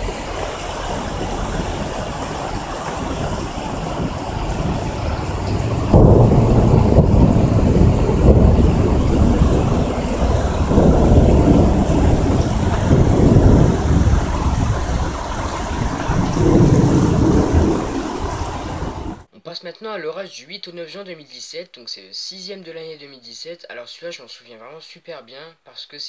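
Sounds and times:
rain hissing: 0.0s - 19.3s
thunder rumbling: 0.0s - 19.3s.

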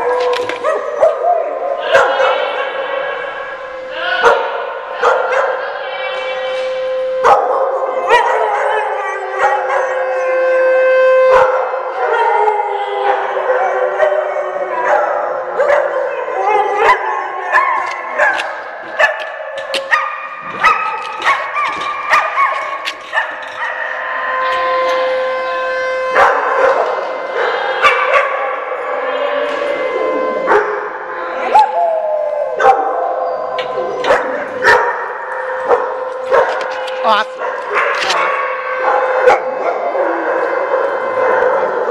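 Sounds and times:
dogs howling: 0.0s - 41.9s
warning siren tone: 2.3s - 15.6s, 16.2s - 41.9s
dogs yipping and barking: 7.2s - 10.4s, 11.3s - 24.9s, 26.1s - 41.9s.

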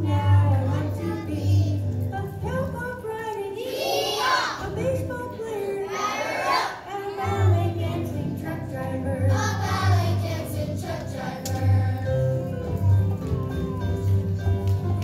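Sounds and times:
children singing together: 0.0s - 1.9s, 3.5s - 4.7s, 5.6s - 12.4s.

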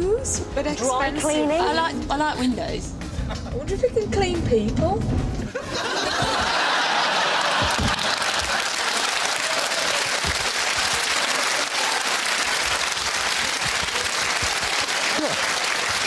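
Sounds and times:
audience applauding: 5.7s - 16.0s.

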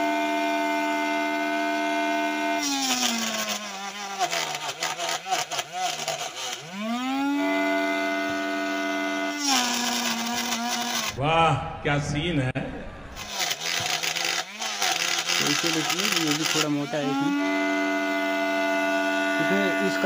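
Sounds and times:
small electric motor whining: 0.0s - 11.2s, 13.2s - 20.0s
blade chopping chilli: 2.6s - 6.7s, 13.2s - 17.7s.

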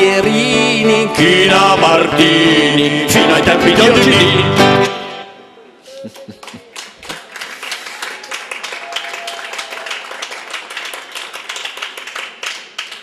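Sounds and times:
sung jingle with acoustic guitar: 0.0s - 5.8s
audience clapping: 6.0s - 13.0s.

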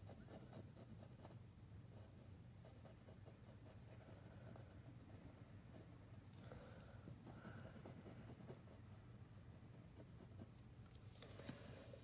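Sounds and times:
pencil scratching on paper: 0.0s - 6.0s, 7.2s - 10.6s.

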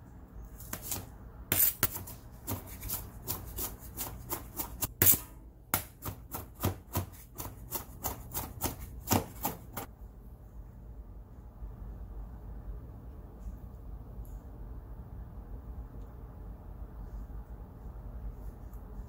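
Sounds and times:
knife chopping on steel board: 0.7s - 9.9s.

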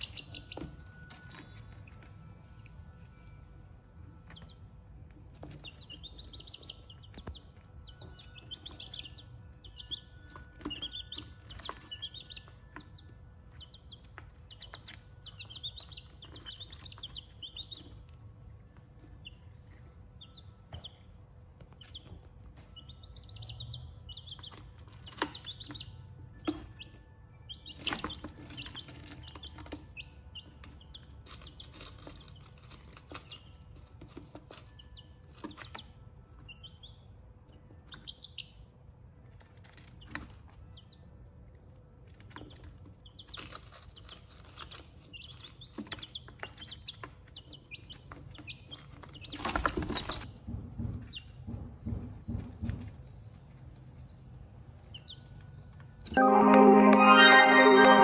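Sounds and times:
chicks peeping: 0.0s - 2.1s, 4.2s - 18.2s, 18.9s - 21.0s, 21.7s - 38.6s, 42.1s - 51.4s, 54.8s - 55.5s.

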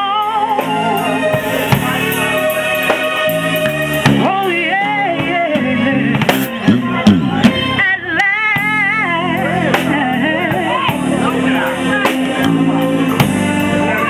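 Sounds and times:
woman singing with vibrato: 0.0s - 1.3s, 4.2s - 6.2s, 7.5s - 12.7s
drum kit with cymbals: 0.0s - 14.0s
electric bass guitar: 0.0s - 14.0s.

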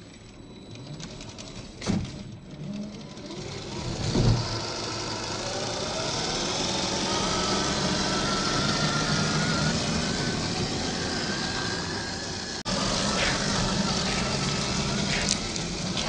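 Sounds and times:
electric motor and gear whine: 0.0s - 16.0s
tyres crunching on loose stones: 12.9s - 16.0s.

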